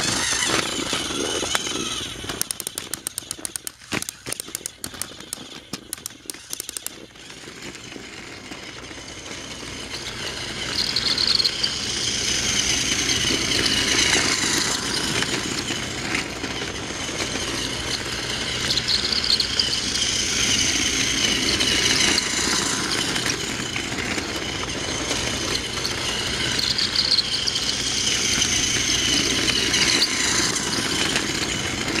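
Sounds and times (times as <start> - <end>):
toy train motor whirring: 0.0 - 32.0
toy train wheels rattling: 0.0 - 32.0.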